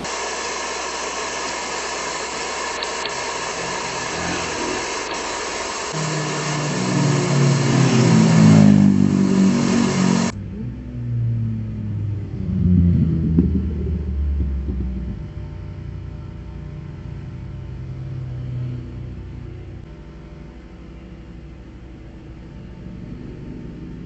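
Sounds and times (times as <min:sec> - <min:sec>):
steady hiss: 0:00.0 - 0:10.4
motorbikes passing: 0:06.0 - 0:15.8.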